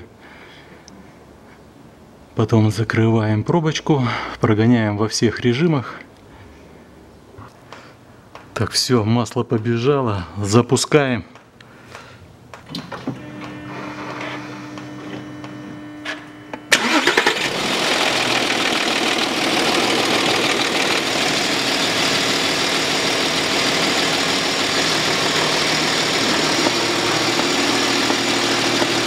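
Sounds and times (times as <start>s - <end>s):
diesel engine cranking and idling: 16.7s - 29.0s.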